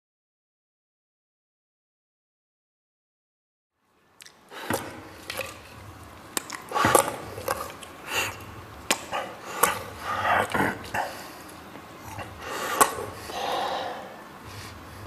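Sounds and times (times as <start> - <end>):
wet mouth squelches: 4.2 - 14.7.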